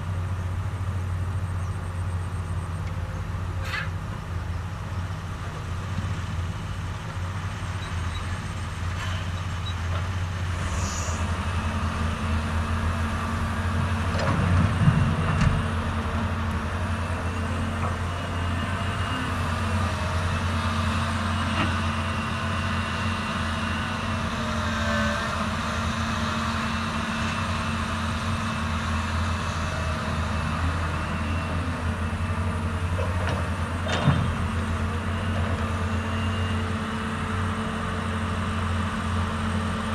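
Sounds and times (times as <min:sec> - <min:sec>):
constant low hum: 0:00.0 - 0:19.3
dump truck engine: 0:00.0 - 0:39.9
excavator diesel engine: 0:00.0 - 0:39.9.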